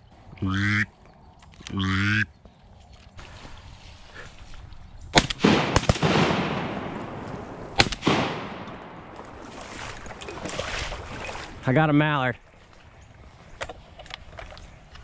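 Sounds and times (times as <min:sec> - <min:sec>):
shotgun blasts with echo: 0:05.2 - 0:09.2.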